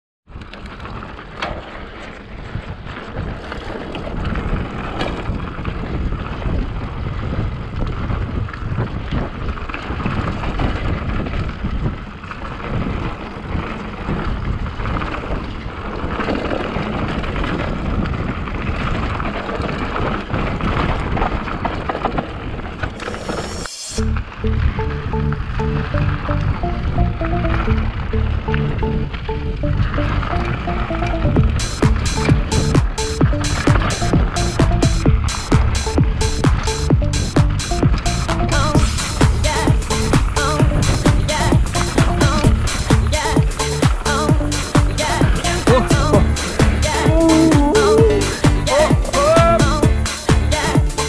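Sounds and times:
wind buffeting microphone: 0.3 - 50.0
bike rattles and clicks: 0.3 - 51.0
bike tyre rumble on trail: 0.3 - 51.0.

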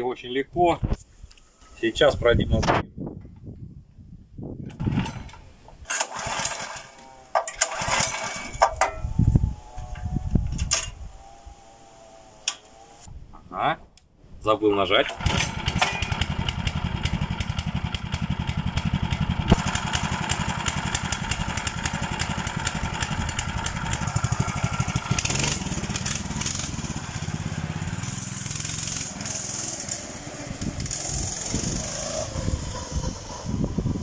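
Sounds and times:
motorcycle engine idling: 15.6 - 32.7.

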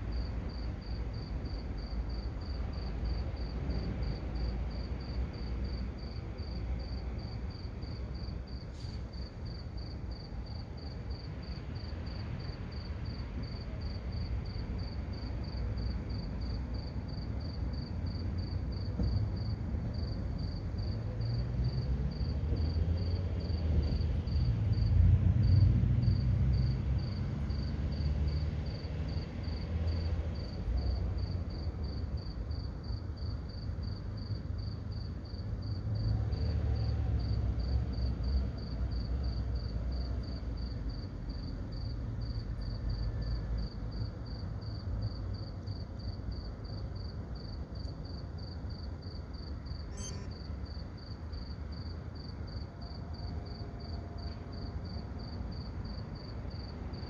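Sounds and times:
insect chirping: 46.0 - 52.6.

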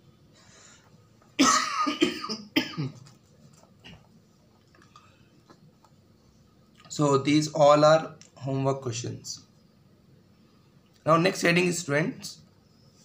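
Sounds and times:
man clearing throat: 1.4 - 3.1
man coughing: 1.4 - 3.1.

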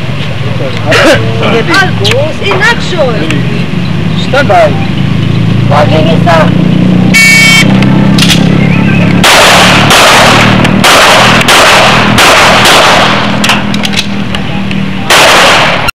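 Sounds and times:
pistol shots: 9.2 - 13.7, 15.1 - 15.9.

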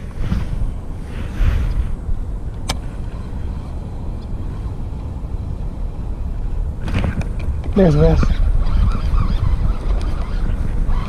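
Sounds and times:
wind on microphone: 0.0 - 11.0
sharp click: 2.6 - 2.8.

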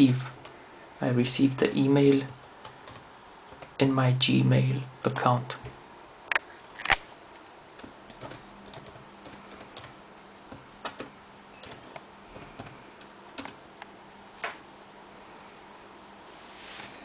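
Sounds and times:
keyboard key clicks: 7.8 - 13.6.

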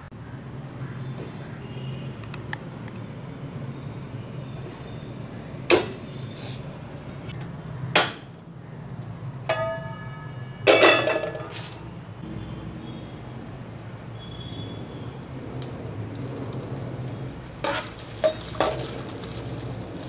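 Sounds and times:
wok clanking on metal: 9.5 - 11.8, 17.6 - 20.0.

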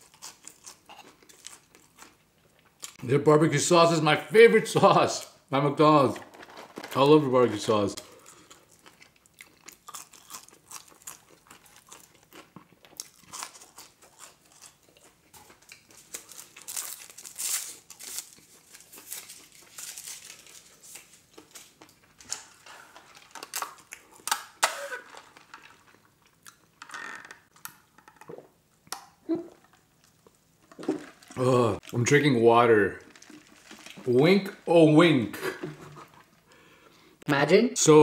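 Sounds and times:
chewing fries with mouth smacking: 0.0 - 3.0, 8.0 - 26.8, 33.0 - 34.0
paper straw wrapper tearing: 16.0 - 21.7.

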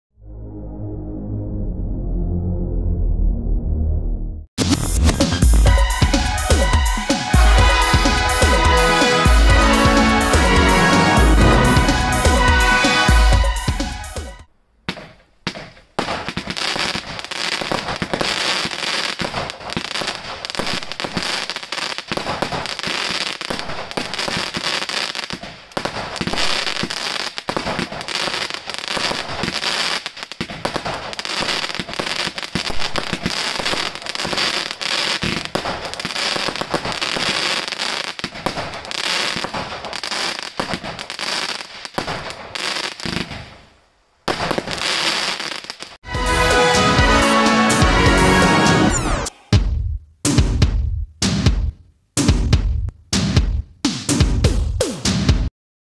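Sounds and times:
roman candle fireworks firing: 5.0 - 49.3
crackling stars: 7.4 - 14.2, 44.3 - 49.4.

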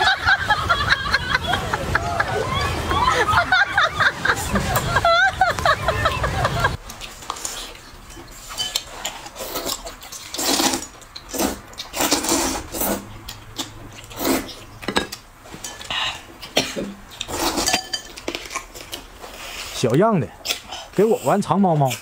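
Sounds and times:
noodles slurped: 6.8 - 14.8, 15.7 - 22.0
food chewing: 6.8 - 21.2.

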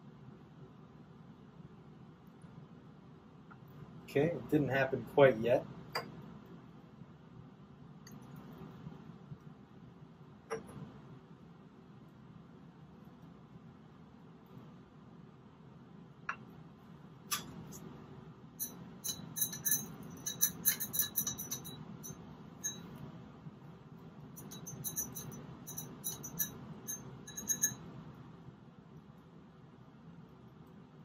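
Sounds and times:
glass rod clinking in beaker: 5.9 - 6.2, 10.5 - 10.8, 18.6 - 23.0, 24.3 - 27.9.

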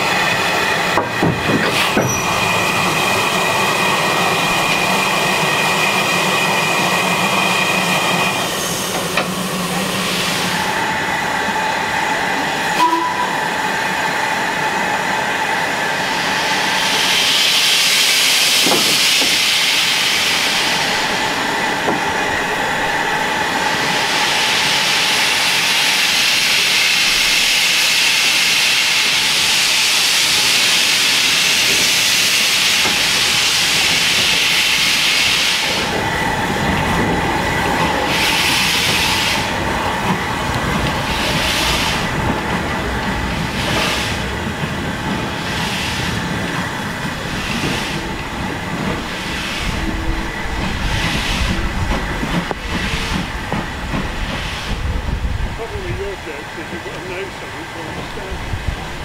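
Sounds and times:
steam hissing: 0.0 - 11.8, 15.8 - 59.0
steam locomotive starting: 0.0 - 59.0.

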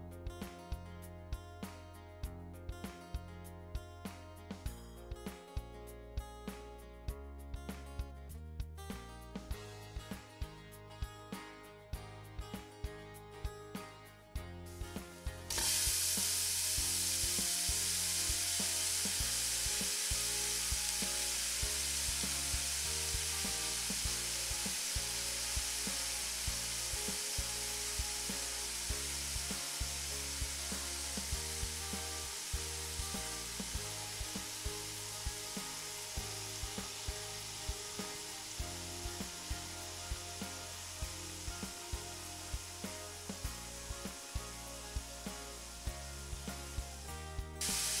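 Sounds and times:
quiet background music: 0.0 - 48.0
fish sizzling in hot oil: 15.5 - 46.6, 47.6 - 48.0.

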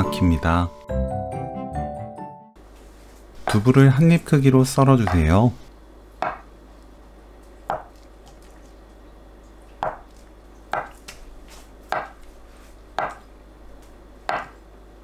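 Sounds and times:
knife tapping on cutting board: 6.2 - 6.4, 7.7 - 7.9, 10.7 - 11.0, 11.9 - 12.2, 13.0 - 13.2, 14.3 - 14.6.

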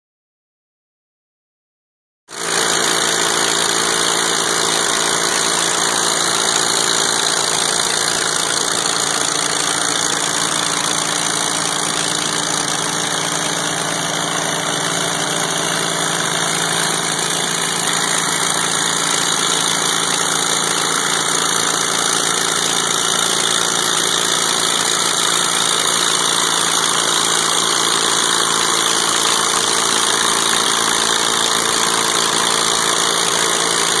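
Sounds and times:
loud unmuffled engine running: 2.3 - 34.0.

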